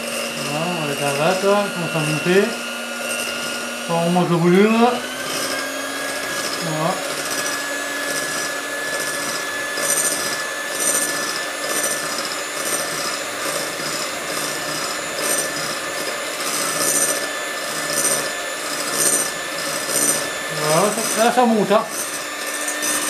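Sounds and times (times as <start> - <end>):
electric hand mixer whining: 0.0 - 23.0.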